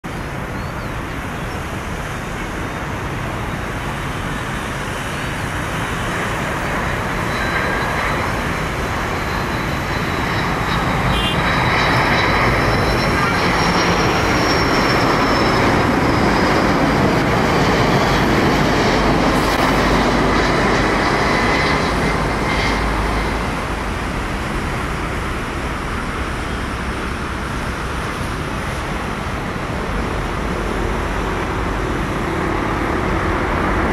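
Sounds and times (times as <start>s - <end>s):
jet engines rushing: 0.0s - 33.9s
thin high engine whine: 0.1s - 33.9s.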